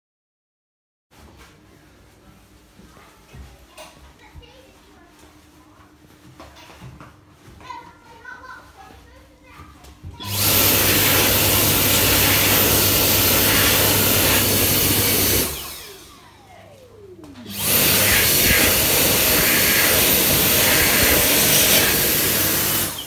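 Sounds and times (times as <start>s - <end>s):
hand dryer blasting air: 10.2s - 23.0s.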